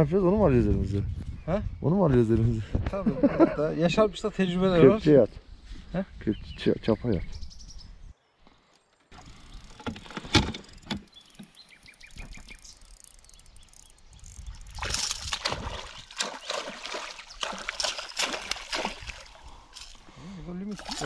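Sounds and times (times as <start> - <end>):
fish splashing in water: 14.7 - 20.0, 20.7 - 21.0.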